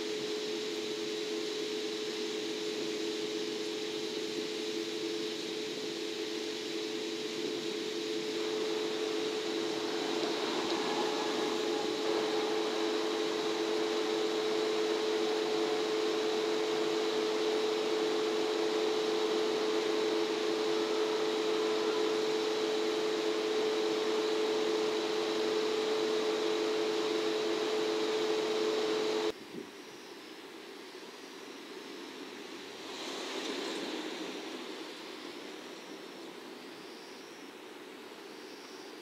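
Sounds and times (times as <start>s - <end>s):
machine hum: 0.0s - 29.4s
even hiss: 0.0s - 39.0s.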